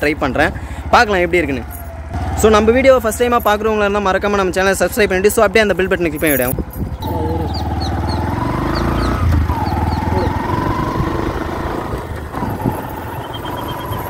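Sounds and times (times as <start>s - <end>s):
motorcycle engine running: 0.0s - 4.0s, 6.9s - 14.0s.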